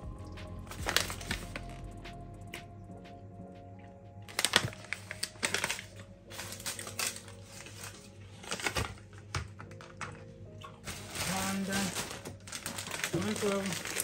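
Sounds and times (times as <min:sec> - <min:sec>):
plastic bag crinkling: 0:00.7 - 0:01.8, 0:04.3 - 0:10.0, 0:10.8 - 0:14.0.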